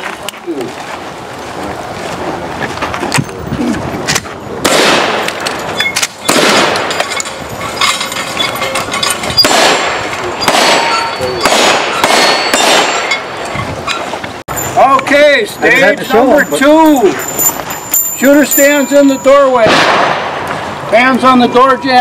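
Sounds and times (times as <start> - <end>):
shotgun blasts echoing: 4.6 - 5.5, 6.2 - 6.9, 9.4 - 13.1, 19.6 - 20.4
pistol shots: 4.6 - 5.6, 6.2 - 7.0, 9.4 - 13.2, 19.6 - 20.4.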